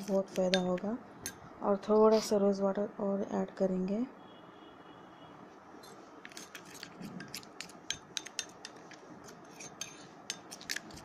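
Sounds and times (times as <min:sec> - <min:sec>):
metal spoon scraping bowl: 0:05.8 - 0:11.0.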